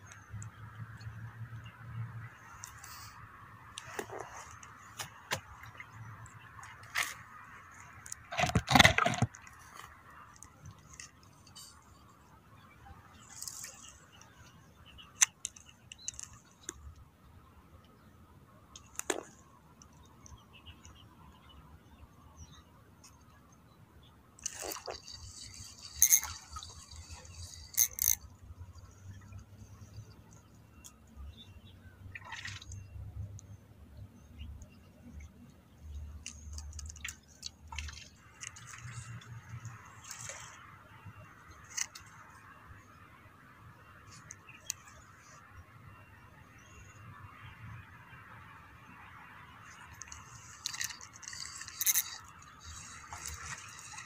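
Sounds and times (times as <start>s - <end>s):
water splashing and dripping: 0.0s - 11.8s, 24.4s - 31.0s, 32.0s - 33.5s, 36.0s - 43.2s, 49.0s - 54.0s.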